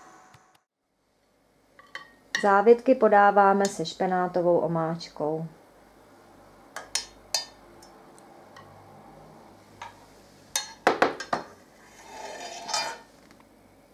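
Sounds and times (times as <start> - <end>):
metal spoon clinking on pan: 6.8 - 7.6, 9.8 - 11.4
pan scraping on glass hob: 11.8 - 13.2.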